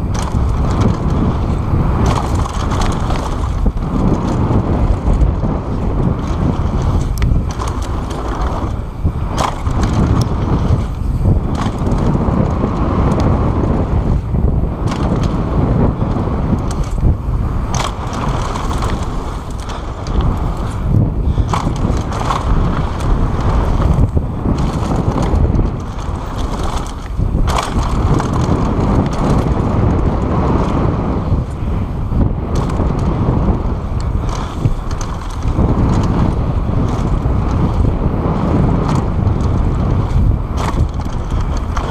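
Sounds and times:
bike rattling over bumps: 0.0 - 41.9
tyres rolling on gravel: 0.0 - 41.9
wind buffeting microphone: 0.0 - 41.9.

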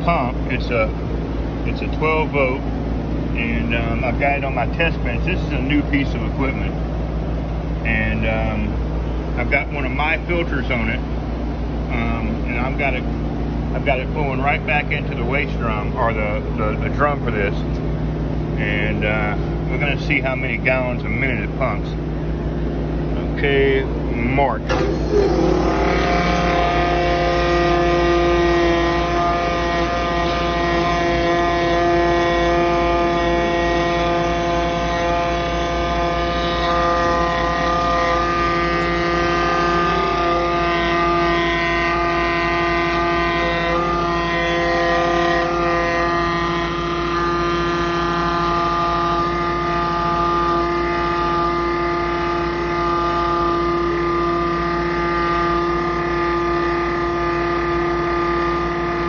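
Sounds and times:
electric pump motor humming: 24.7 - 59.0.

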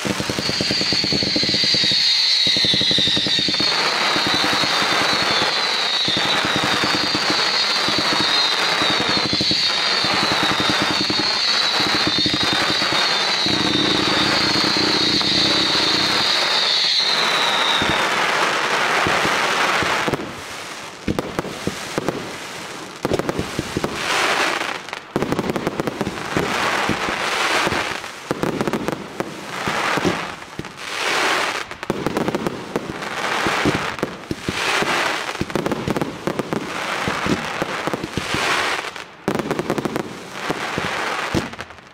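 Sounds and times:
crackling firework bursts: 0.0 - 41.9
fireworks barrage: 0.0 - 41.9
high wavering whistle: 0.4 - 18.2.

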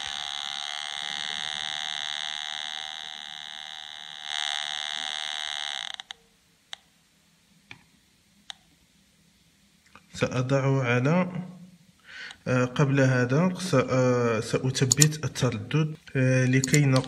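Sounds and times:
metal detector buzzing tone: 0.0 - 6.2
sharp clicks: 14.8 - 17.0.

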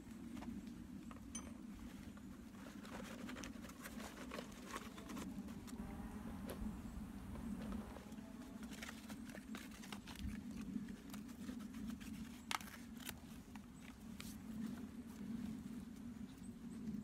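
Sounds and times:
steady low hum: 4.4 - 17.0
camping gear clicking: 7.4 - 14.7.

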